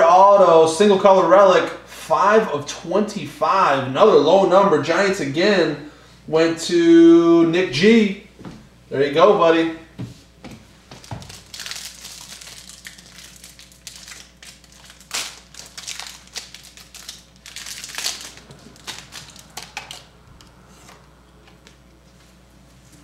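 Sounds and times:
cards rustling: 11.0 - 20.1
wrapper crinkling and tearing: 11.0 - 20.1.

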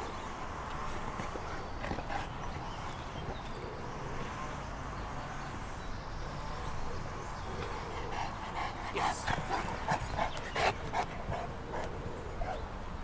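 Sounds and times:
dog breathing: 0.8 - 4.0, 6.4 - 12.5.

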